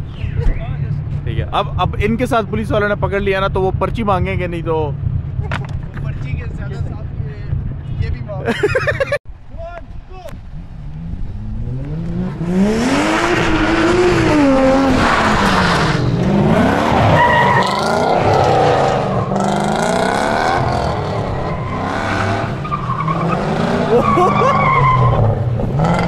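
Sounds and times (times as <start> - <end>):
car engine revving: 10.5 - 26.0
tyres squealing: 16.7 - 25.9.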